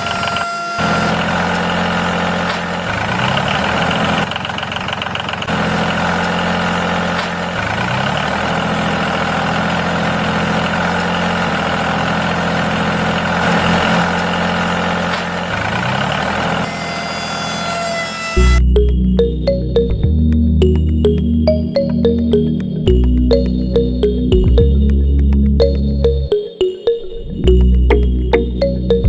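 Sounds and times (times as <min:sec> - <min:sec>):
small tractor engine running: 0:00.0 - 0:18.9.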